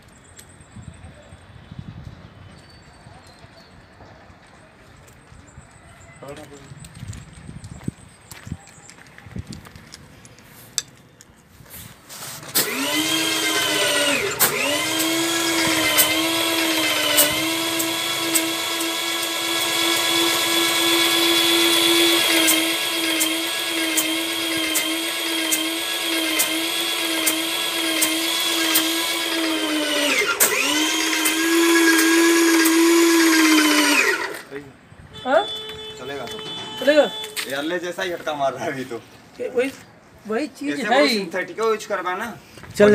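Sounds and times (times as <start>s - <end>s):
paint sprayer pump whine: 12.4s - 34.6s.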